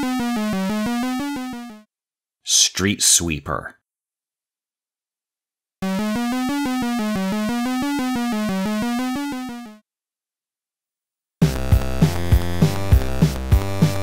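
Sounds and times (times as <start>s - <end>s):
synthesizer tune of repeated notes: 0.0s - 1.9s, 5.8s - 9.8s.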